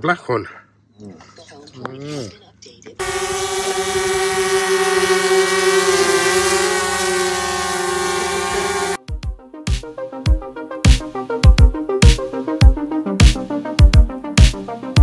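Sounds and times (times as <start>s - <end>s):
drone propellers whining: 3.0s - 9.0s.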